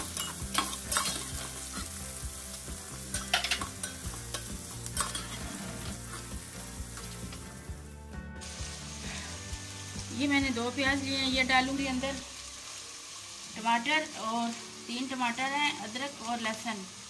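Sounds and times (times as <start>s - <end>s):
vegetables sizzling in oil: 0.0s - 17.0s
metal spoon scraping a pot: 0.2s - 1.5s, 3.1s - 6.4s.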